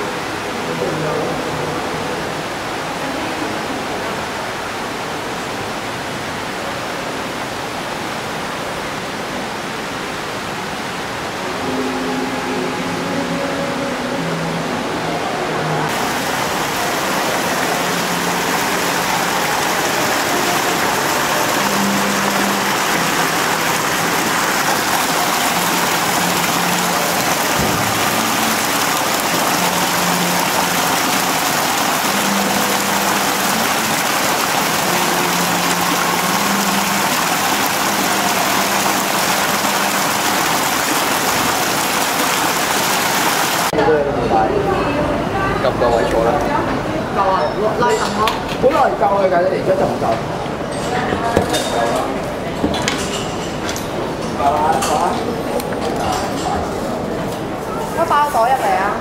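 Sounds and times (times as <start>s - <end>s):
fountain water splashing: 14.0s - 43.8s.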